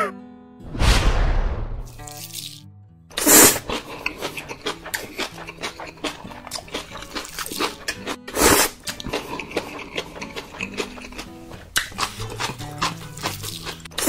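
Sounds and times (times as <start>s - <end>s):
noodle slurp: 3.2s - 14.0s
wet chewing clicks: 3.6s - 14.0s.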